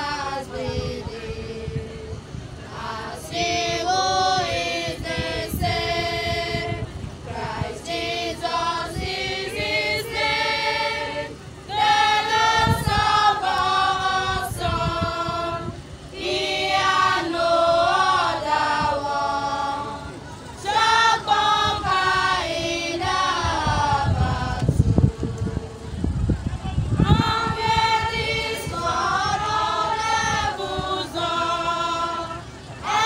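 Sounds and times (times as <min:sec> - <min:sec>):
women's choir singing a hymn: 0:00.0 - 0:26.1, 0:26.8 - 0:33.0.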